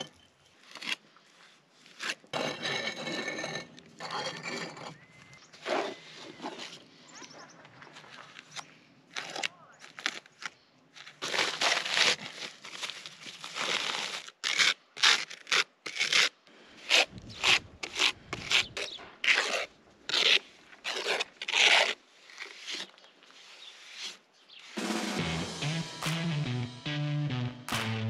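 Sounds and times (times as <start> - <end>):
trowel scraping mortar on bricks: 0.0 - 6.9, 13.4 - 24.8.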